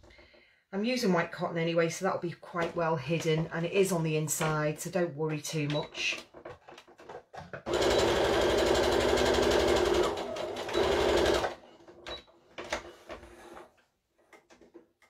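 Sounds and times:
sewing machine stitching: 7.7s - 12.2s.

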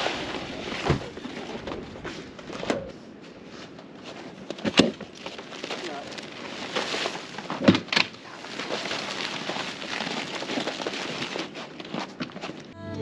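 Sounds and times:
tent canvas rustling: 3.4s - 12.8s.

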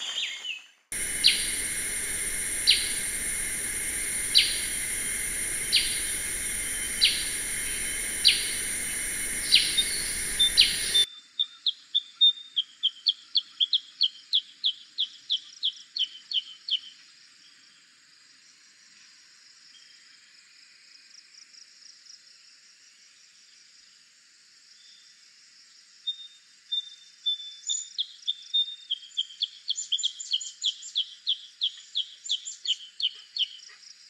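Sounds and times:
steady high hiss: 0.9s - 11.1s
bulbul calls: 1.0s - 11.1s.

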